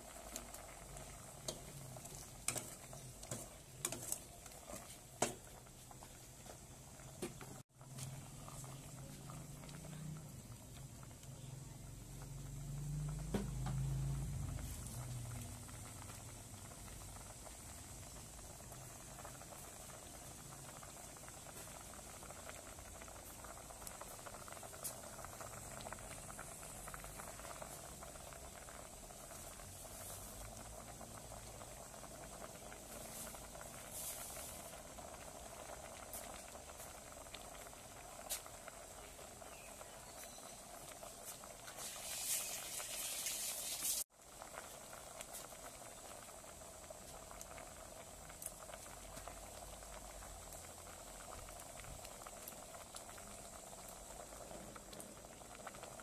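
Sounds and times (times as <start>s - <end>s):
broth boiling and bubbling: 0.0s - 56.0s
loud hiss: 41.7s - 44.1s.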